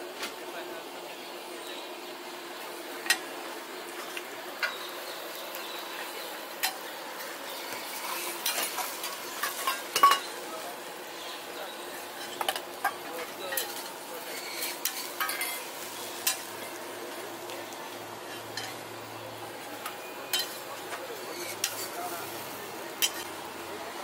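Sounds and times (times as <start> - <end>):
steady hiss: 0.0 - 24.0
metal spatula clinking and scraping: 7.9 - 10.3, 12.2 - 16.8, 18.3 - 18.8, 20.3 - 22.0, 23.0 - 23.3.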